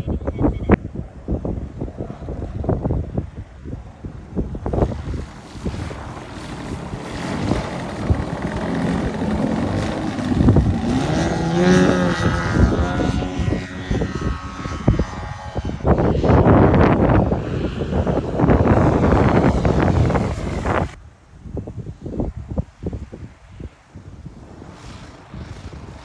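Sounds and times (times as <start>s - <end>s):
wind buffeting microphone: 0.0s - 26.0s
two-stroke engine throttling up: 6.6s - 13.4s.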